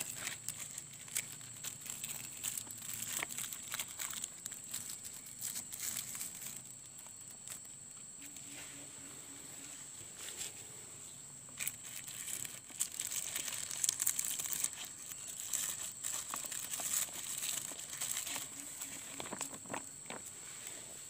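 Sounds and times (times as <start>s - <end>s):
plastic tape crinkling: 0.0s - 7.7s, 11.5s - 20.3s.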